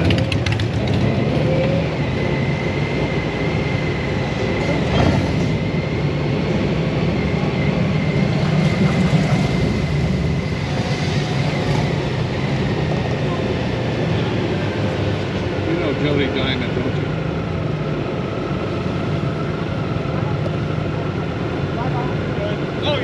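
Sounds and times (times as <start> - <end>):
motorcycle engine rumbling: 0.0 - 15.6.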